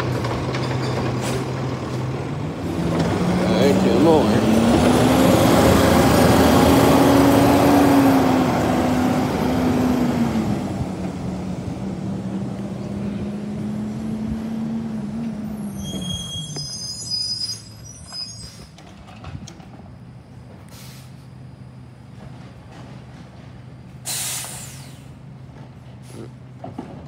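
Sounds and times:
truck diesel engine driving off: 0.0 - 27.0
high squeaks: 15.5 - 18.8.

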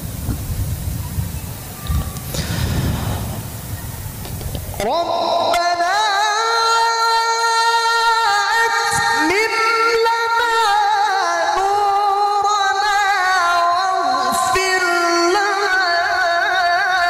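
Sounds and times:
man chanting through microphone: 4.8 - 17.0.

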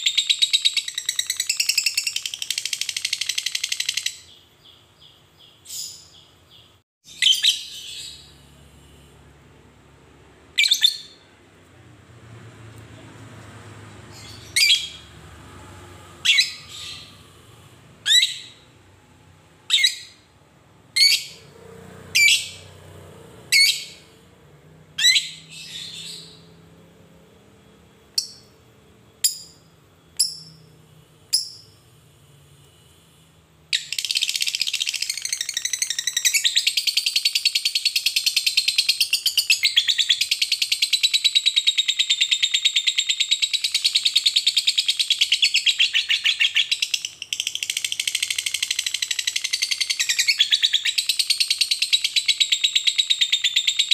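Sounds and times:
lovebird chirping: 0.0 - 9.0, 10.5 - 11.3, 14.0 - 15.2, 16.0 - 18.8, 19.6 - 20.3, 20.9 - 24.2, 24.9 - 26.7, 28.1 - 28.6, 29.2 - 31.8, 33.8 - 53.9.

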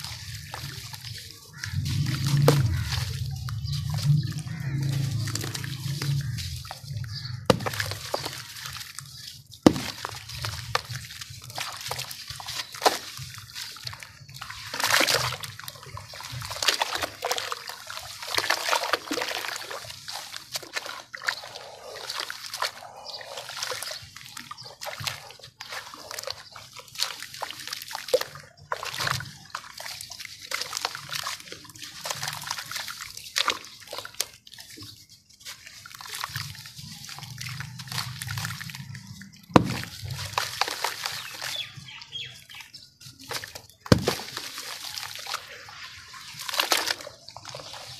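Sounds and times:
gritty crumbling and pattering: 0.0 - 17.2, 35.0 - 47.9
wet sloshing and splashing: 0.0 - 47.9.

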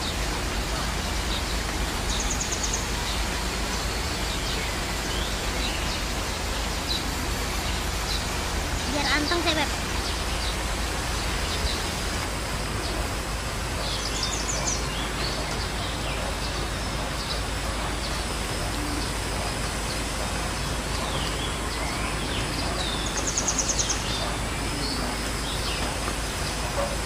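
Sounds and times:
birds calling: 0.0 - 27.0
outdoor background hiss: 0.0 - 27.0.

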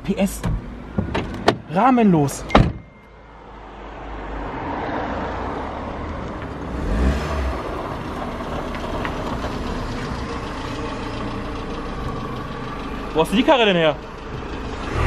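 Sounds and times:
car engine idling: 6.2 - 15.0.

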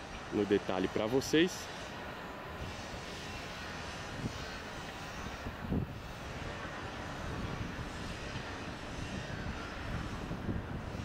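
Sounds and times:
outdoor rumble and hiss: 0.0 - 11.0.

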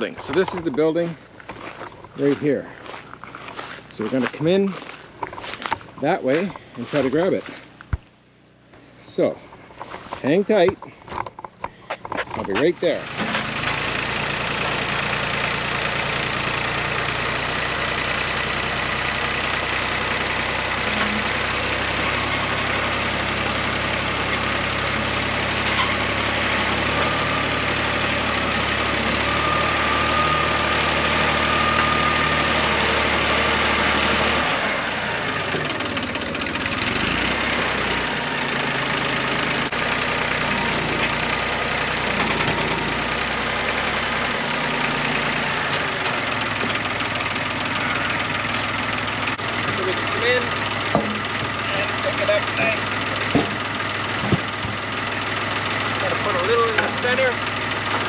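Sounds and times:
tractor engine running: 0.0 - 58.0.

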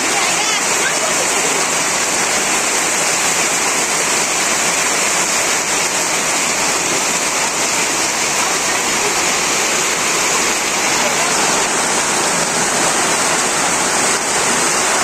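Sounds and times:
heavy rain on tin roofs: 0.0 - 15.0.

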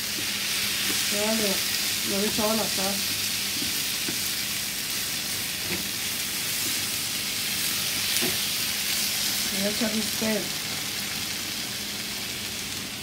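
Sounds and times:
rice sizzling in a pan: 0.0 - 13.0
wooden spoon stirring: 2.1 - 4.4.

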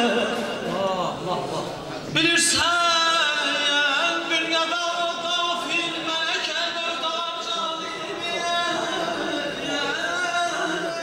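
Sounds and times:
man chanting through loudspeaker: 0.0 - 11.0.

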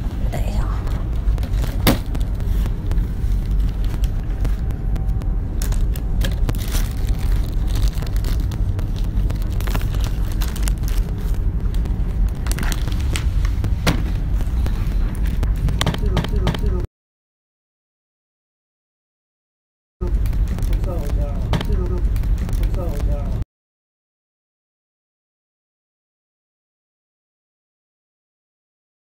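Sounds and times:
phone handling rumble: 0.8 - 16.8.

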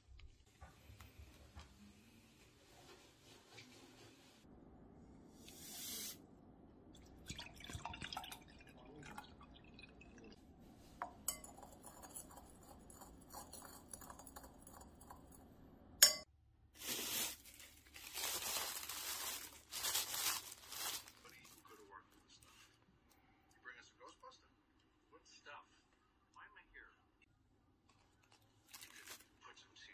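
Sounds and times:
liquid pouring: 6.9 - 10.4
metal spoon clinking against glass: 11.2 - 15.3, 16.0 - 16.3
plastic bag crinkling: 16.8 - 21.7, 28.2 - 29.4.

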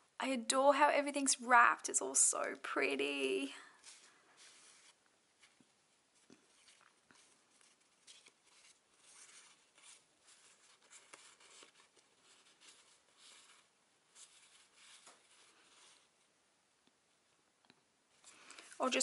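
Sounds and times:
paper cards rustling: 3.8 - 16.2.

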